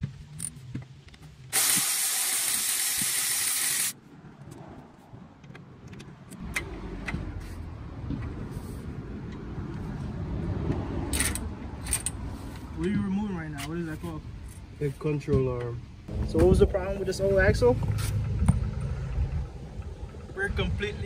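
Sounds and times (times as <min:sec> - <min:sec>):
loud steady hiss: 0:01.5 - 0:04.0
power ratchet clicking: 0:01.5 - 0:04.0
low rumbling: 0:16.0 - 0:21.0.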